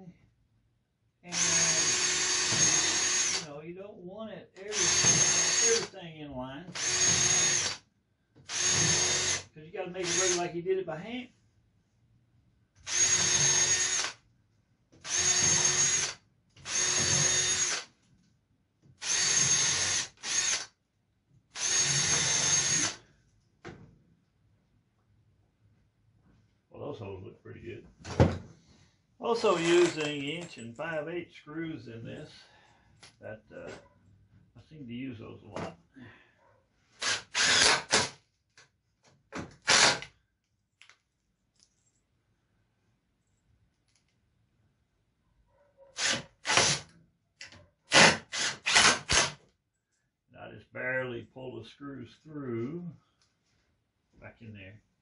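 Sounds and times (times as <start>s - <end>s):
power drill running: 1.3s - 3.5s, 4.6s - 5.9s, 6.7s - 7.8s, 8.5s - 10.5s, 12.8s - 14.2s, 15.0s - 17.9s, 19.0s - 20.7s, 21.5s - 23.0s, 37.0s - 38.2s, 39.6s - 40.1s, 46.0s - 46.9s, 47.9s - 49.4s.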